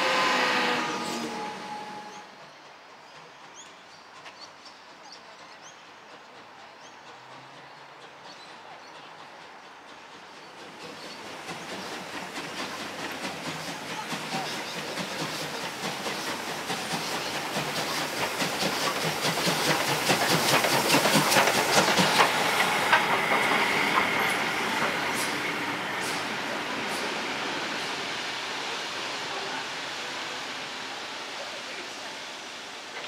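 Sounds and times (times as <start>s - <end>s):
train wheels clicking over rail joints: 9.2s - 28.6s
steam locomotive exhaust chuffs: 9.2s - 33.0s.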